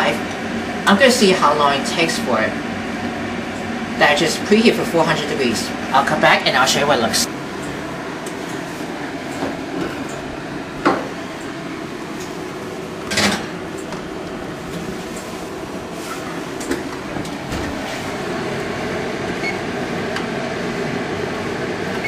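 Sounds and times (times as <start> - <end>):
short beeps of oven buttons: 19.4 - 19.6.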